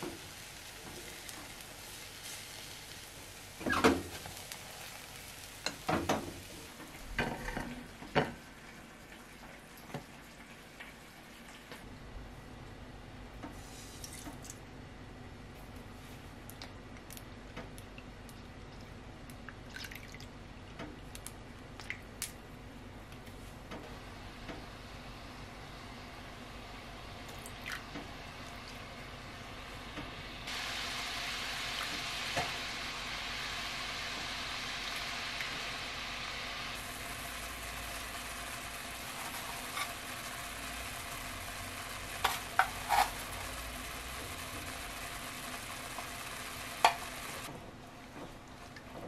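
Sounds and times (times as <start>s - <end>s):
sauce sizzling in a frying pan: 0.0s - 11.6s, 28.1s - 47.5s.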